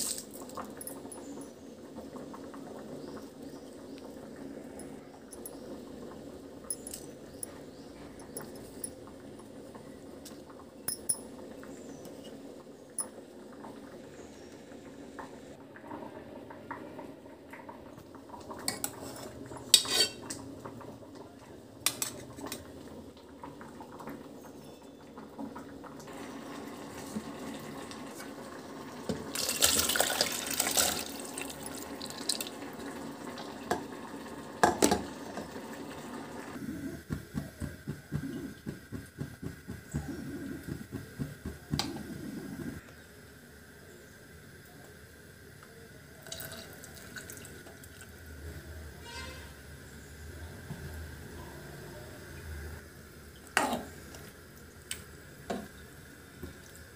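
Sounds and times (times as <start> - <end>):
metal dishes clinking: 19.8 - 20.3.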